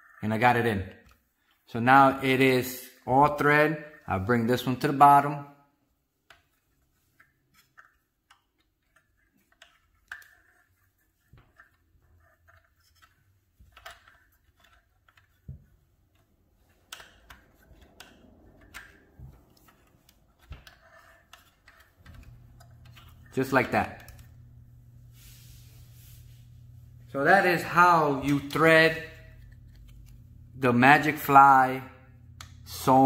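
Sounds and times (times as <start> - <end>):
light rustling of hands: 24.4 - 27.0.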